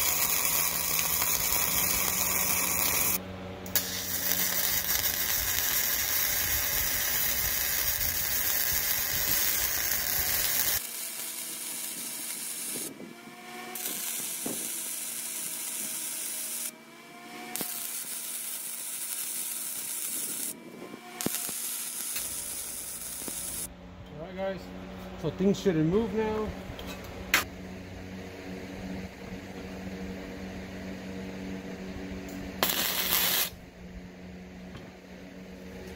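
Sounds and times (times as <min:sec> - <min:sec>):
welding arc crackling and hissing: 0:00.0 - 0:16.8, 0:17.4 - 0:23.7, 0:32.6 - 0:33.6.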